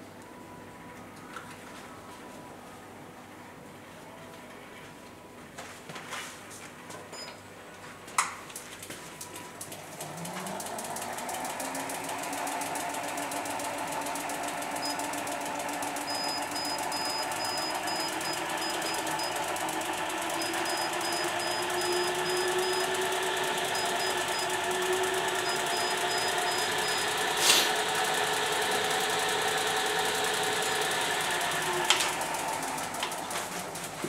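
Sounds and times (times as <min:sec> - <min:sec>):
spinning wheel whir: 0:09.7 - 0:33.8.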